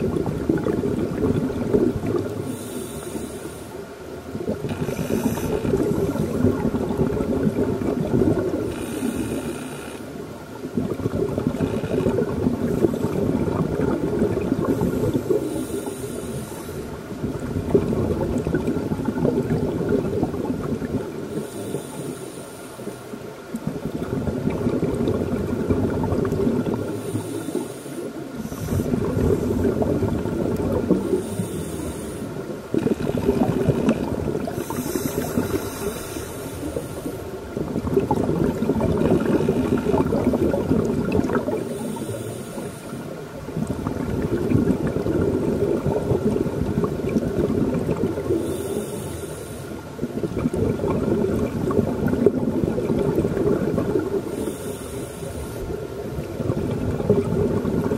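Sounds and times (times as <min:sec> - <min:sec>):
exhaled air bubbling underwater: 0:00.0 - 0:57.9
regulator hissing inhalations: 0:02.4 - 0:03.8, 0:15.0 - 0:16.9, 0:21.3 - 0:23.2, 0:27.0 - 0:29.7, 0:31.0 - 0:32.4, 0:34.6 - 0:37.3, 0:41.6 - 0:43.1, 0:48.4 - 0:49.8, 0:54.3 - 0:55.8.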